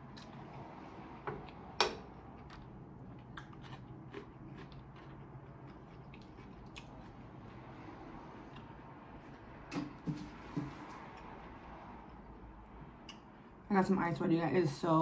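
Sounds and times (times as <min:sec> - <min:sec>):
chewing: 0:02.4 - 0:07.6.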